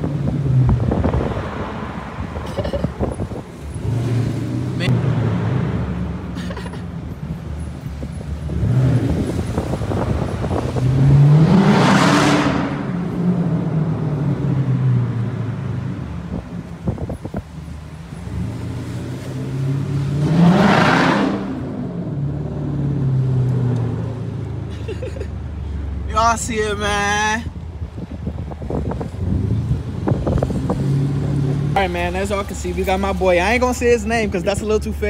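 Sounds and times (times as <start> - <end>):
car engine accelerating: 7.7 - 25.3.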